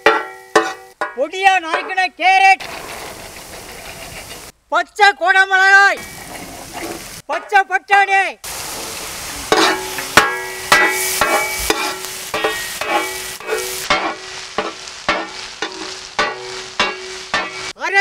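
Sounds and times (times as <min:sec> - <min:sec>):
metal spatula scraping a pan: 0:00.0 - 0:01.2, 0:06.0 - 0:07.2, 0:09.4 - 0:17.8
vegetables sizzling in a pan: 0:02.7 - 0:04.5, 0:06.0 - 0:07.3, 0:08.4 - 0:17.8.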